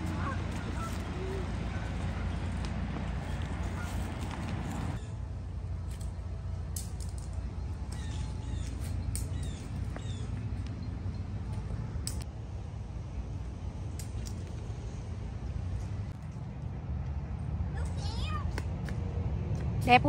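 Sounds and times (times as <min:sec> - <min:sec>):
footsteps on dry leaves: 0:00.0 - 0:05.0
low wind rumble: 0:00.0 - 0:20.0.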